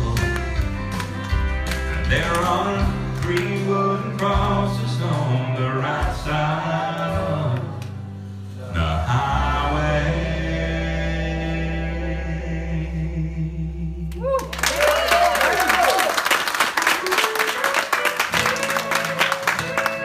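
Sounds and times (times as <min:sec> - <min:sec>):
strummed acoustic guitar: 0:00.0 - 0:10.0
person singing: 0:01.9 - 0:08.0
audience applause: 0:14.2 - 0:20.0
voices above clapping: 0:14.2 - 0:20.0.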